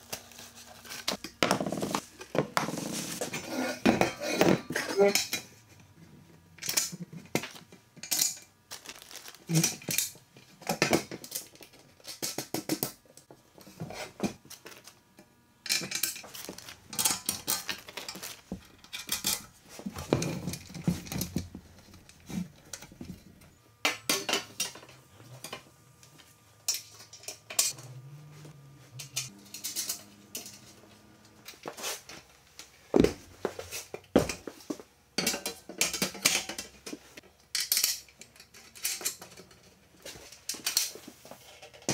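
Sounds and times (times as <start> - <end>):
metal parts clinking and clattering: 15.7 - 21.4, 29.0 - 31.6, 37.5 - 39.7.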